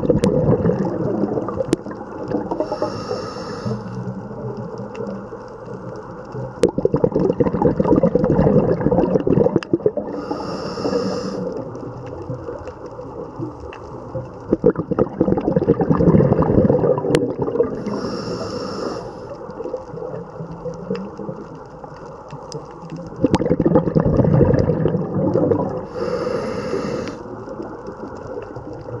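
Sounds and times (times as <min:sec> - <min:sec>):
bubbling exhalation underwater: 0:00.0 - 0:02.9, 0:06.6 - 0:11.6, 0:14.5 - 0:18.4, 0:23.2 - 0:27.0
regulator inhale hiss: 0:02.6 - 0:04.1, 0:10.1 - 0:11.7, 0:17.8 - 0:19.5, 0:25.9 - 0:27.4.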